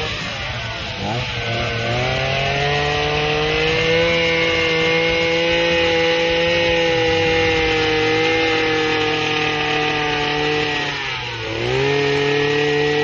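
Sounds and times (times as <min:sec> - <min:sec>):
petrol hedge trimmer engine: 0:00.0 - 0:13.0.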